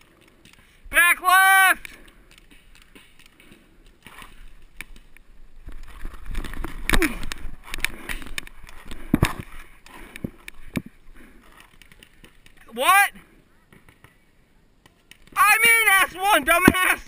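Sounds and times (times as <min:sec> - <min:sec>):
gear and clothing rustling: 0:02.0 - 0:12.7.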